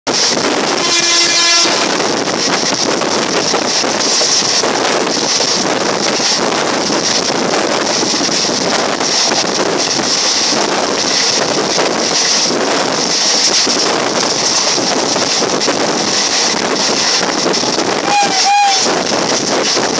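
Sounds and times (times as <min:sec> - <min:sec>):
train running noise: 0:00.1 - 0:19.9
wind rushing over microphone: 0:00.1 - 0:19.9
train horn: 0:00.6 - 0:02.0, 0:18.0 - 0:19.1.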